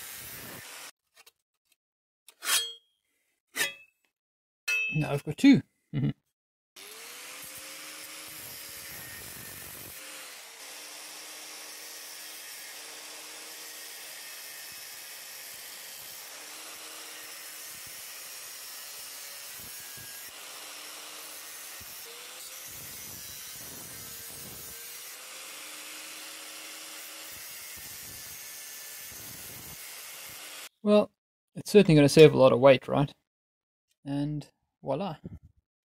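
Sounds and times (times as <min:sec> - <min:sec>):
angle grinder cutting metal: 0:00.0 - 0:00.9, 0:06.8 - 0:30.7.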